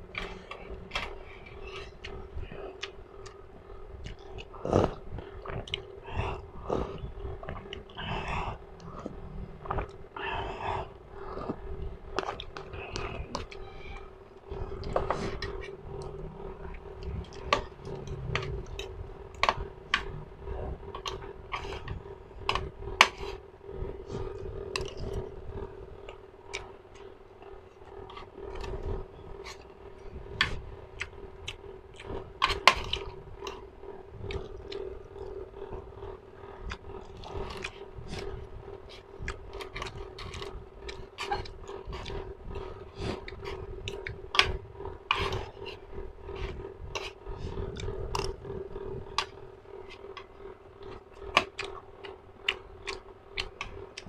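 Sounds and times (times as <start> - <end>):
low hum: 0.0 - 54.0
wet chewing clicks: 4.0 - 10.5, 26.0 - 54.0.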